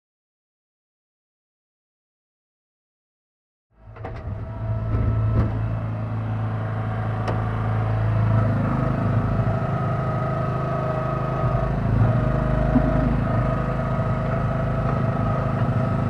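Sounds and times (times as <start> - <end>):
mini backhoe engine running: 3.8 - 16.0.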